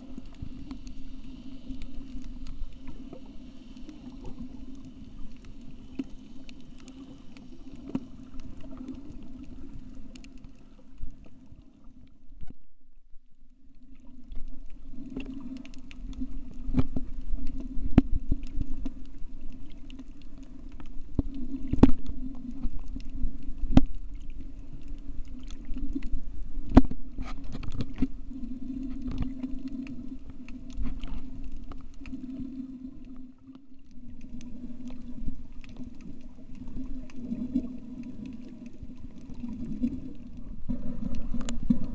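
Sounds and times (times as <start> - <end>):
low underwater hum: 0.0 - 41.9
underwater clicks and knocks: 12.4 - 12.7, 14.3 - 19.0, 20.8 - 24.0, 25.4 - 28.2, 39.2 - 41.9.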